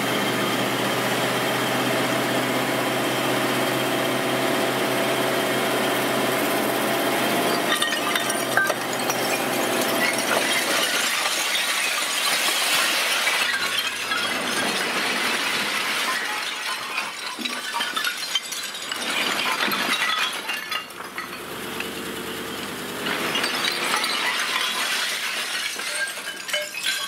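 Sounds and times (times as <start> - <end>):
stone slabs clattering: 7.5 - 21.9, 23.0 - 27.0.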